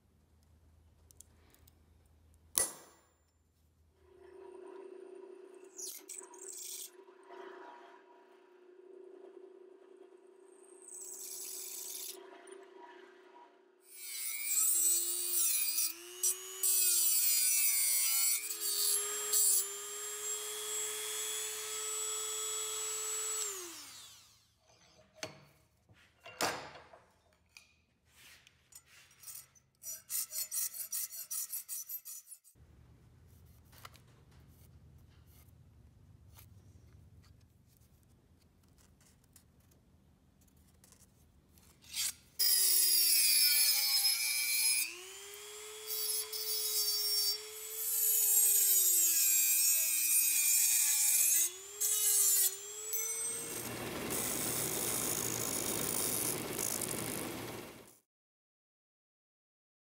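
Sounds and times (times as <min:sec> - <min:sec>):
rotary tool whining into metal: 0:04.2 - 0:08.4, 0:13.9 - 0:25.4, 0:41.8 - 0:58.0
file strokes on metal: 0:28.1 - 0:32.6.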